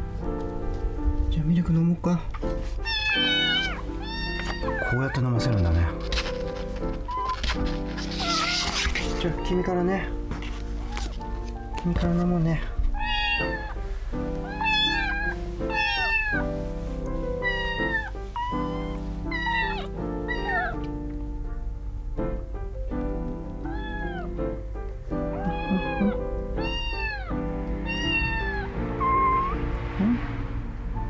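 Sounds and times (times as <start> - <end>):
background music with held notes: 0.0 - 31.0
kittens mewing: 2.8 - 5.3, 5.9 - 9.7, 13.0 - 13.8, 14.4 - 16.5, 17.2 - 20.9, 23.6 - 24.4, 25.2 - 29.6.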